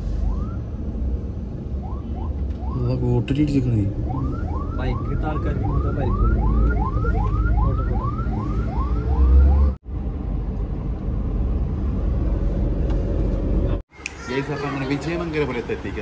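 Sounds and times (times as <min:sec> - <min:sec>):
vehicle road rumble: 0:00.0 - 0:16.0
ambulance siren yelping: 0:01.8 - 0:09.8.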